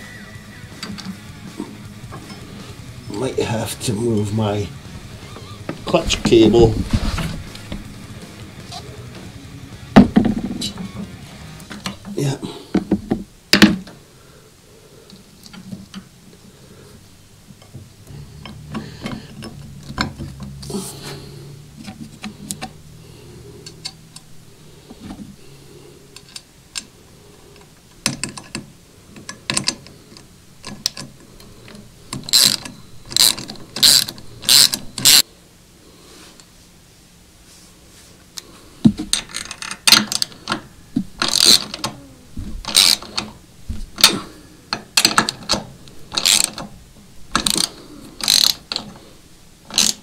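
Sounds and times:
ratchet wrench clicking: 0:32.2 - 0:35.2, 0:41.2 - 0:41.8, 0:42.7 - 0:43.2, 0:46.1 - 0:46.6, 0:47.4 - 0:48.8, 0:49.7 - 0:50.0.

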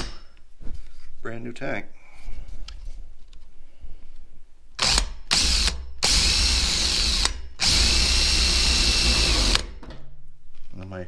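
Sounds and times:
electric drill hole saw on metal: 0:04.8 - 0:09.7.

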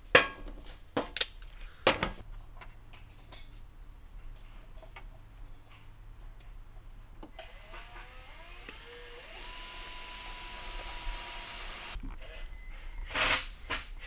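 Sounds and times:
motor whine spinning up: 0:07.4 - 0:12.0.

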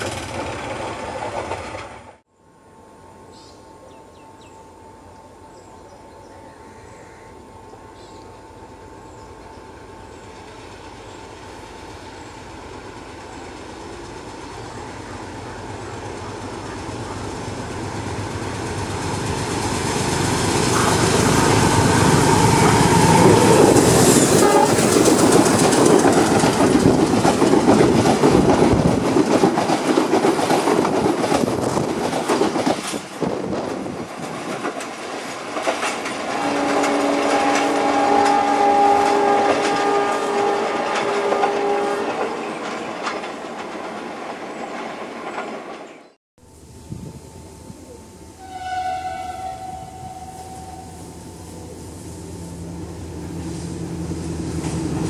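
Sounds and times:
diesel train rumble: 0:00.0 - 0:55.0
wheels clattering over rail joints: 0:18.2 - 0:46.2
train horn chord: 0:20.7 - 0:25.4, 0:36.3 - 0:42.4, 0:48.2 - 0:52.4.

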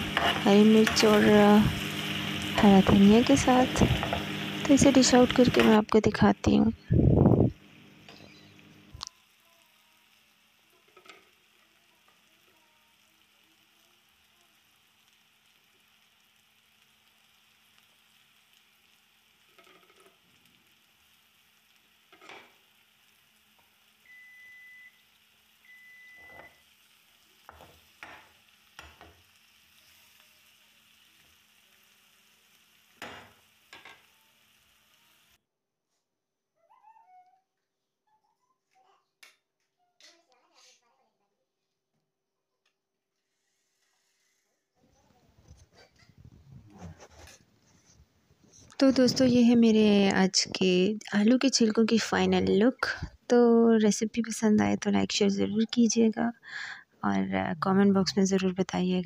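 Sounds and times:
spoon scraping and knocking pan: 0:00.0 - 0:05.8, 0:27.4 - 0:29.2
potato peels sizzling in pan: 0:00.0 - 0:35.4, 0:45.0 - 0:59.0.

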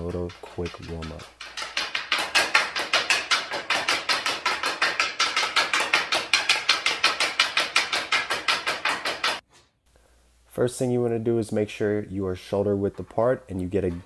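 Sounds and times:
hockey stick tapping ball on concrete: 0:00.0 - 0:09.4.

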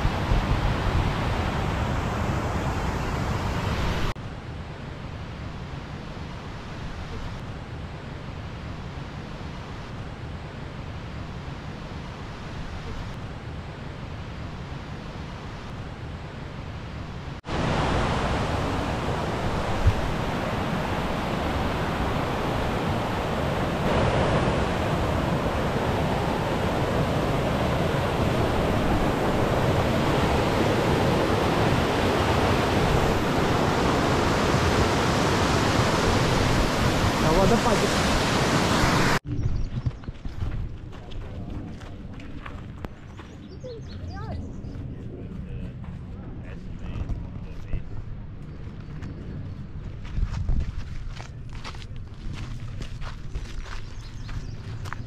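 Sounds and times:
wind-like rushing noise: 0:00.0 - 0:55.0
creek rushing over rocks: 0:17.4 - 0:39.2.

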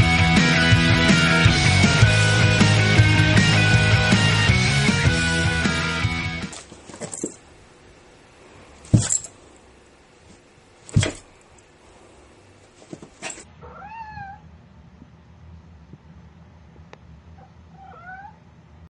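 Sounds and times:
cat meowing: 0:13.6 - 0:14.5, 0:17.7 - 0:18.4.

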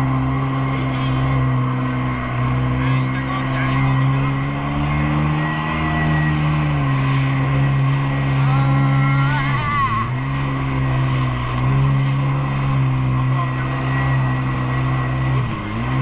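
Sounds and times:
jet ski engine running: 0:00.0 - 0:16.0
wind and spray hiss: 0:10.1 - 0:13.3.

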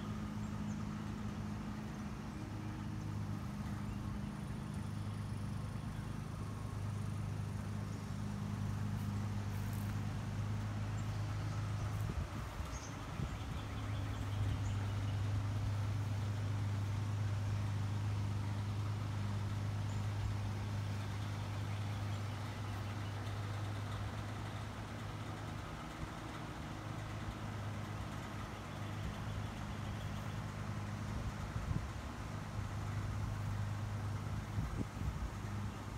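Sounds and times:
air conditioner unit humming: 0:00.0 - 0:35.9.

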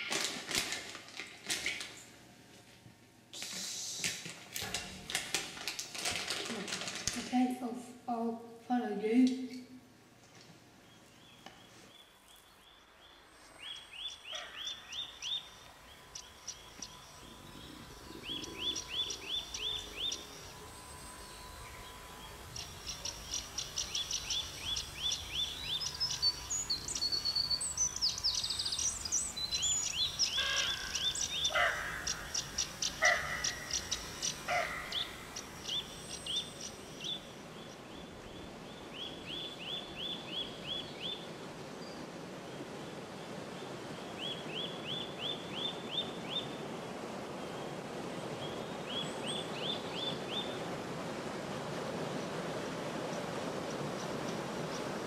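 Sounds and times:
lower bird calls: 0:10.8 - 0:42.0
small birds chirping: 0:10.8 - 0:42.0.

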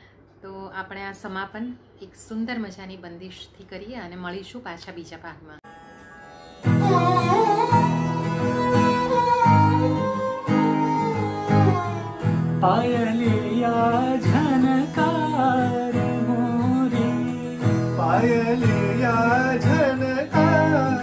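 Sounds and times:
acoustic guitar strumming: 0:05.7 - 0:21.0
sarangi bowed melody: 0:05.7 - 0:21.0
man singing wordlessly: 0:12.6 - 0:21.0.

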